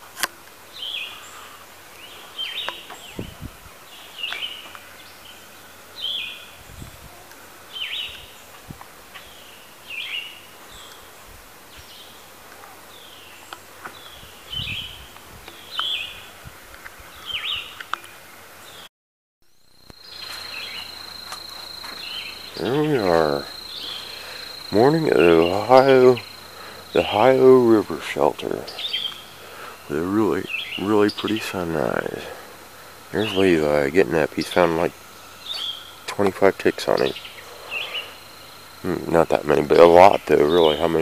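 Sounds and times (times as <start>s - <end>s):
songbird calling: 0.0s - 18.9s, 19.5s - 41.0s
high insect trill: 19.5s - 41.0s.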